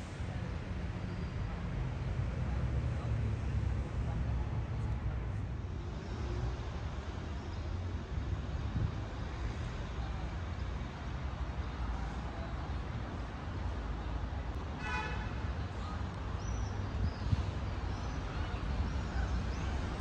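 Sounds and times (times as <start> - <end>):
road traffic rumble: 0.0 - 20.0
car horn toot: 14.8 - 15.3.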